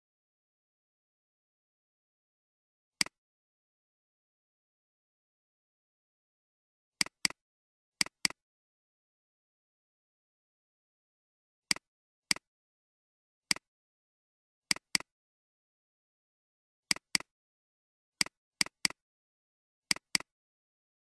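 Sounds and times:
computer mouse clicks: 0:07.0 - 0:07.4, 0:08.0 - 0:08.4, 0:11.7 - 0:12.5, 0:14.7 - 0:15.1, 0:16.9 - 0:17.3, 0:18.2 - 0:19.0, 0:19.9 - 0:20.3.

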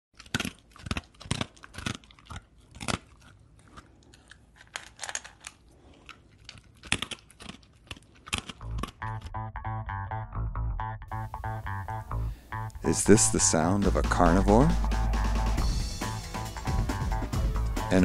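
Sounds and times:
chewing with loud crunches: 0:00.2 - 0:09.3.

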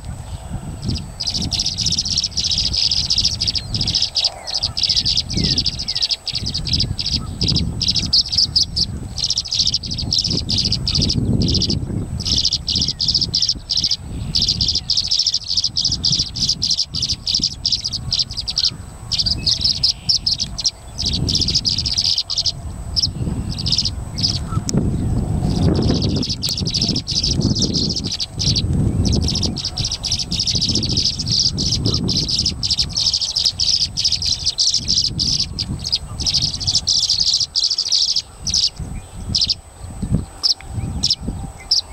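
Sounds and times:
swallows chirping and twittering: 0:00.0 - 0:41.9
wind rumble on microphone: 0:00.0 - 0:41.9.

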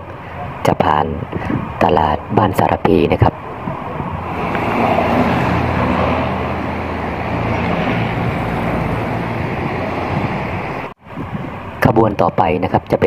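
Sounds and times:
diesel locomotive engine hum: 0:00.0 - 0:11.8
train coaches rumbling on rails: 0:03.2 - 0:11.0.

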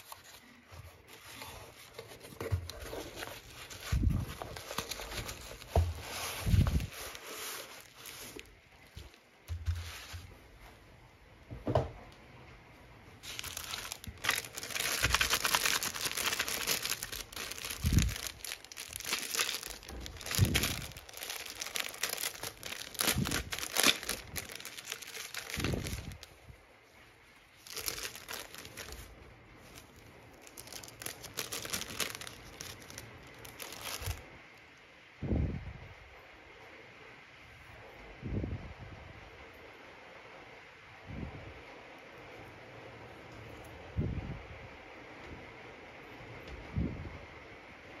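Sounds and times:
plastic packaging crinkling and tearing: 0:00.0 - 0:09.2, 0:13.2 - 0:26.4, 0:27.4 - 0:34.3.

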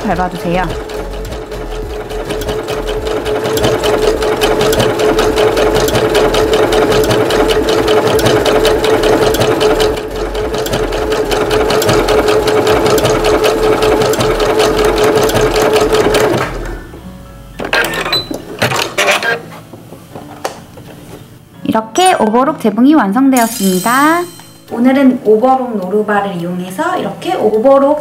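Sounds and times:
sewing machine running: 0:00.0 - 0:16.8.

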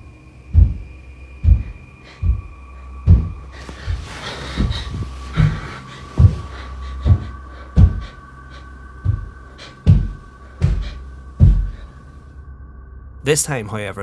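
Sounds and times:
steady hum: 0:00.0 - 0:13.4
footsteps on wooden stairs: 0:00.5 - 0:08.3, 0:09.0 - 0:11.9.

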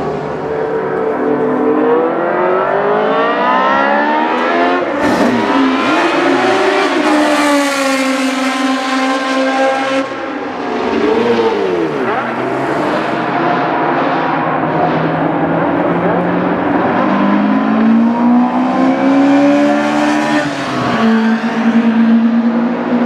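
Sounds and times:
racing car engine revving: 0:00.0 - 0:23.0.

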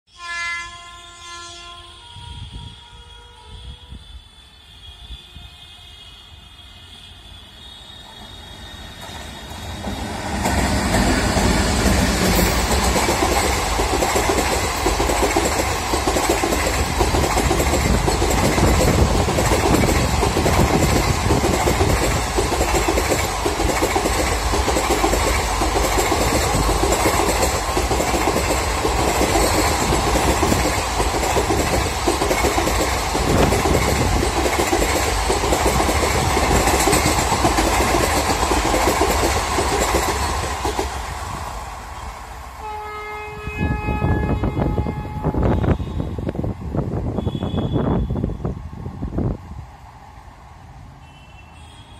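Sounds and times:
train wheels running on rails: 0:02.1 - 0:42.8.

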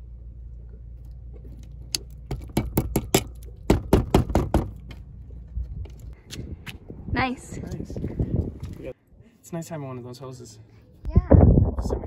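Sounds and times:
steady low hum: 0:00.0 - 0:03.9.

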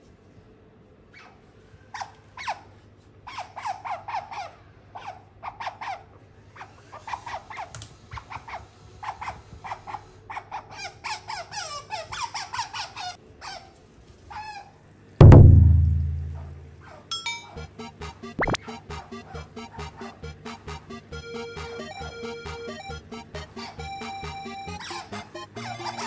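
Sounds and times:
loud low ringing hit: 0:15.2 - 0:16.7.

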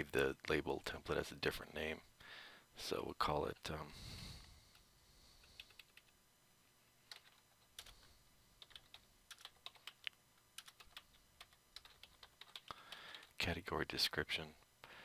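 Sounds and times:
faint keyboard typing: 0:04.7 - 0:06.2, 0:07.0 - 0:13.4.

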